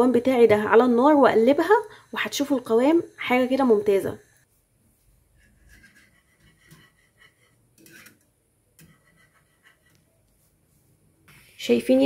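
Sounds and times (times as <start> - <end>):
plastic spoon scraping a pan: 5.4 - 10.2.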